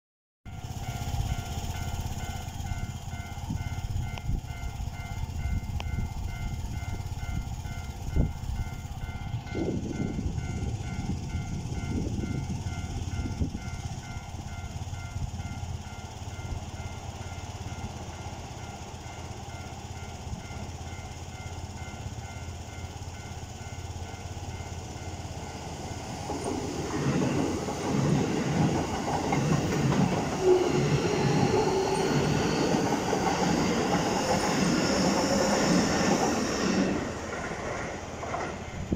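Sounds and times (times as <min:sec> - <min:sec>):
train wheels clacking over rail joints: 0:26.0 - 0:38.9.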